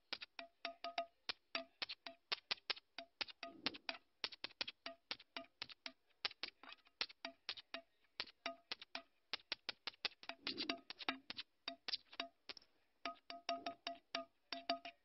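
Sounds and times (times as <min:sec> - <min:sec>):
clicking percussion music: 0:03.0 - 0:14.9.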